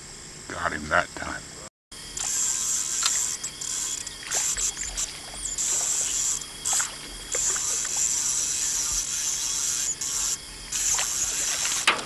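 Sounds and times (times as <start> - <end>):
insects buzzing: 0.0 - 12.0.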